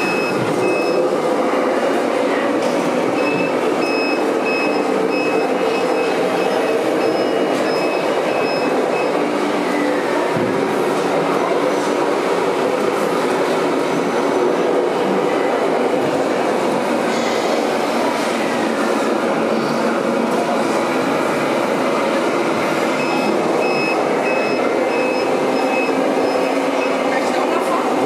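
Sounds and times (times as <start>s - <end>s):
electronic warning beeper: 0.0s - 1.1s, 3.2s - 9.2s, 23.0s - 27.0s
loud rumbling running noise: 0.0s - 28.0s.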